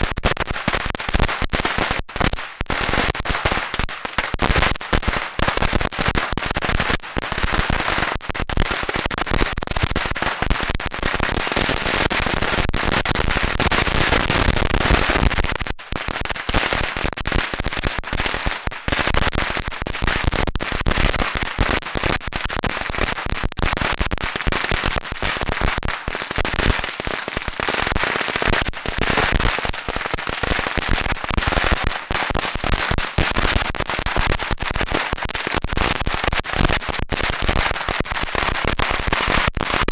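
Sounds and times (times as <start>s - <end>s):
firecrackers crackling: 0.0s - 39.9s.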